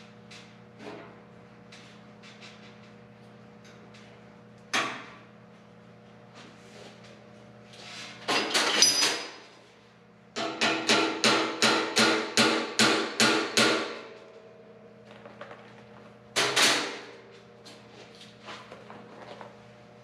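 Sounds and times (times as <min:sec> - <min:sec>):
hammer striking sheet metal: 0:10.4 - 0:14.1.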